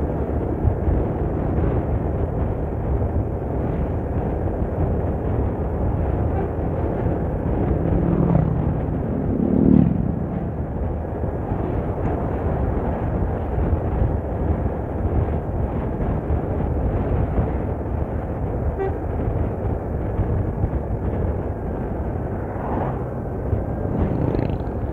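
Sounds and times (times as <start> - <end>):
road and wind rumble: 0.0 - 24.9
engine note rising: 7.6 - 11.0.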